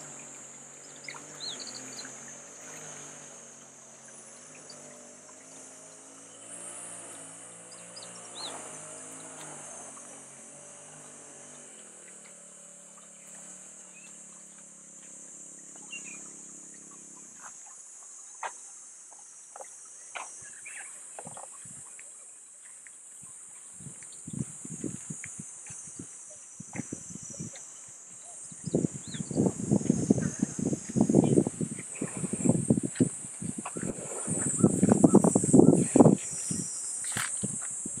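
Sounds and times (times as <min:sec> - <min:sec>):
low engine hum: 0:00.0 - 0:22.3, 0:23.0 - 0:38.0
insects buzzing: 0:00.0 - 0:38.0
footsteps crunching on dirt: 0:32.8 - 0:38.0.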